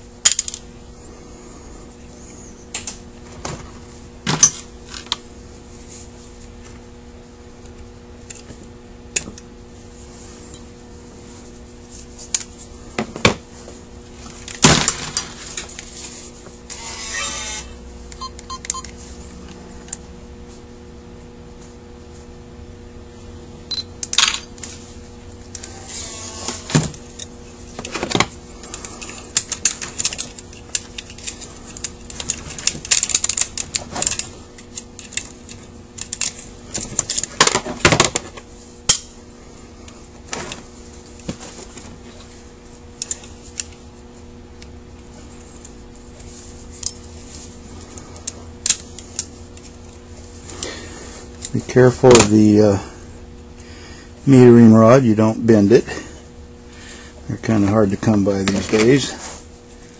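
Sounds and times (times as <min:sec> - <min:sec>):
steady low hum: 0:00.0 - 0:59.9
metal parts clicking and clinking: 0:00.2 - 0:00.6, 0:28.7 - 0:37.6.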